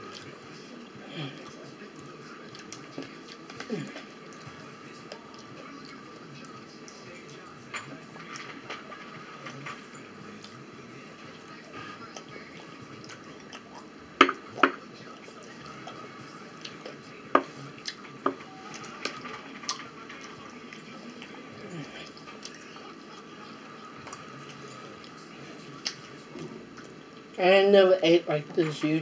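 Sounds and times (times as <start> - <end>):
wet chewing smacks: 21.7 - 26.1.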